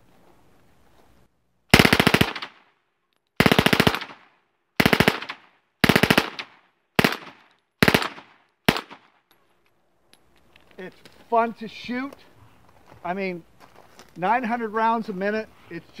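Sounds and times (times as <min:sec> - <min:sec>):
submachine gun bursts with echo: 0:01.7 - 0:02.6, 0:03.4 - 0:04.2, 0:04.8 - 0:09.0.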